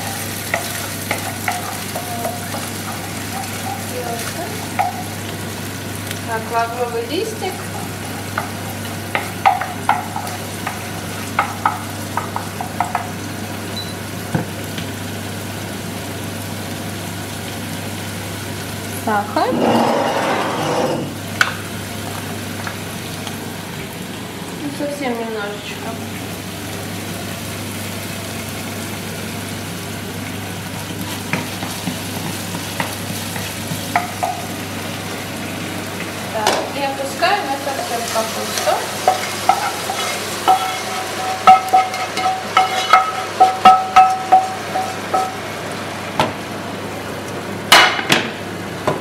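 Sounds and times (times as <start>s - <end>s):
wooden spoon tapping and scraping pan: 0.0s - 5.0s, 8.3s - 13.1s, 31.1s - 34.4s, 38.6s - 45.4s
food sizzling in a frying pan: 0.0s - 48.9s
wooden spoon scraping a pan: 19.5s - 21.2s, 37.8s - 45.3s.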